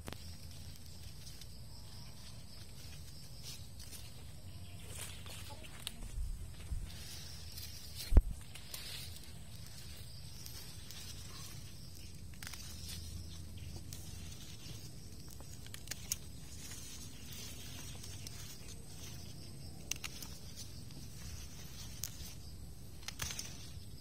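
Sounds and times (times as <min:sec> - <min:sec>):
rustling leaves: 0:00.0 - 0:24.0
pruning shears snipping: 0:07.5 - 0:24.0.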